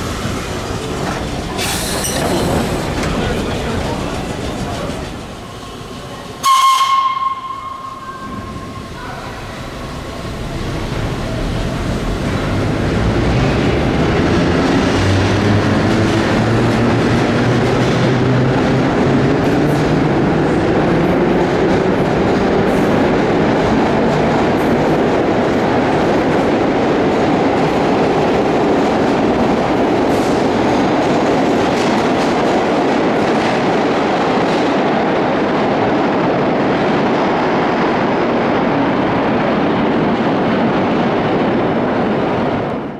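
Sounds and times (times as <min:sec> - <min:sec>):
wheels clacking over rails: 0:00.0 - 0:35.2
train rumble: 0:00.0 - 0:42.9
subway train horn blast: 0:06.4 - 0:09.7.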